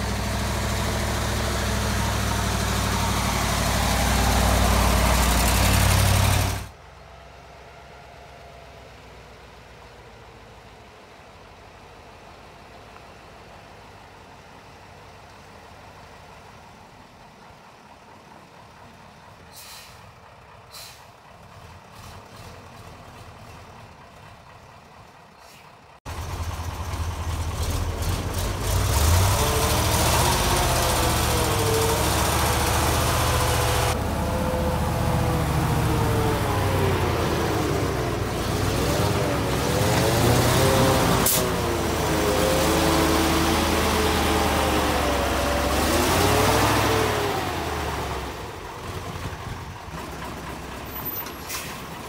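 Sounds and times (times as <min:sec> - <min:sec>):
diesel truck engine rumbling: 0:00.0 - 0:52.0
short hisses: 0:19.5 - 0:20.0, 0:20.7 - 0:21.1.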